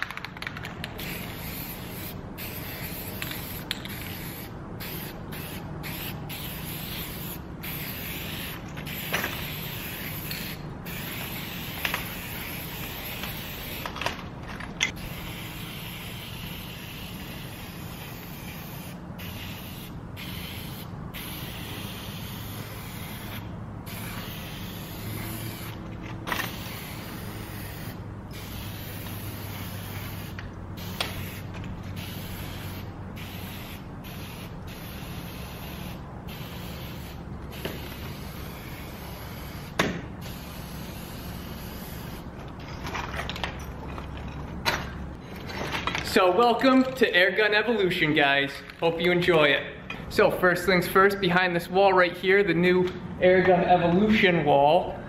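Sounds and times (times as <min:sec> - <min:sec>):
spray paint can hissing: 0:00.0 - 0:14.1, 0:14.9 - 0:42.3.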